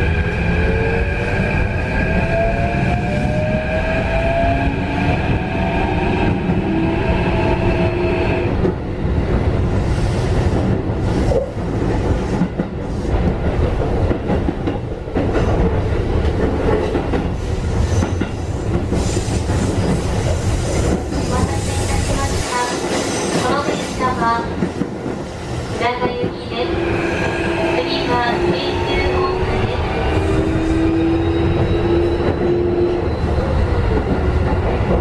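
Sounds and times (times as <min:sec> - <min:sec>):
train wheels rumbling on rail: 0:00.0 - 0:35.0
rail joint clicks: 0:10.0 - 0:35.0.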